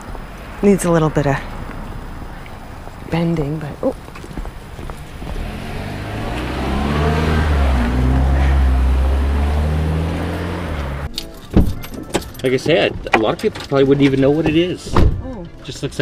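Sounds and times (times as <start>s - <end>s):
vehicle engine running: 0.6s - 11.1s.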